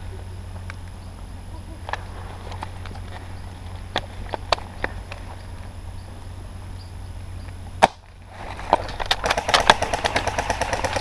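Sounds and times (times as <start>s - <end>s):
airsoft gun shot: 7.8s - 8.1s, 9.1s - 11.0s
airsoft gun firing full-auto: 7.8s - 11.0s.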